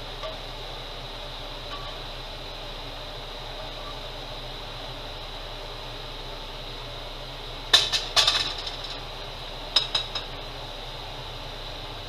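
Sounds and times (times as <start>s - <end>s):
steady low hum: 0.0s - 12.0s
metal cookware clinking: 9.8s - 10.3s.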